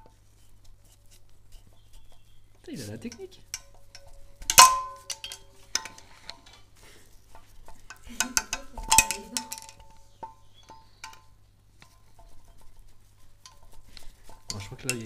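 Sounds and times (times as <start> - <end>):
pliers clicking and scraping on metal: 3.0 - 6.6
metallic clinks: 3.0 - 15.0.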